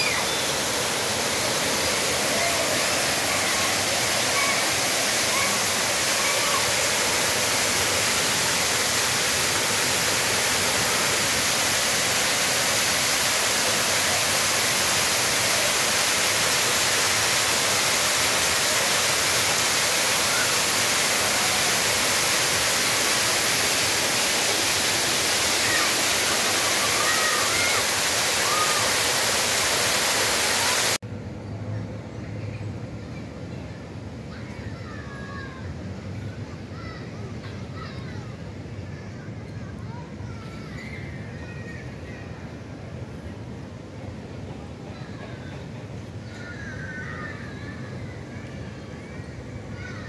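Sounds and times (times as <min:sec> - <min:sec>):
fountain water splashing into pool: 0:00.0 - 0:31.0.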